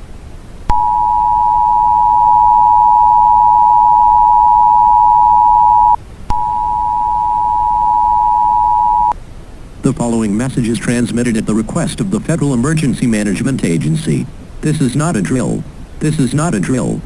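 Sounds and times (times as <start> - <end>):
two-tone electronic alert signal: 0.7 - 9.1.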